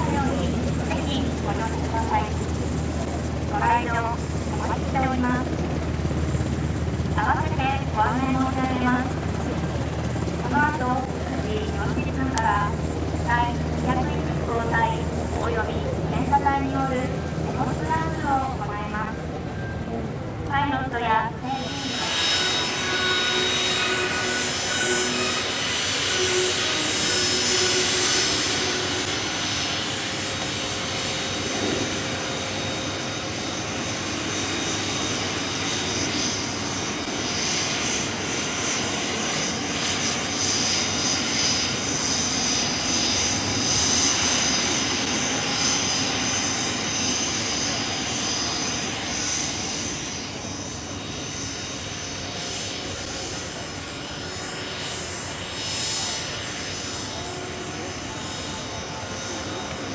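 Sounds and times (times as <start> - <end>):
jet engines roaring with whine: 0.0 - 59.9.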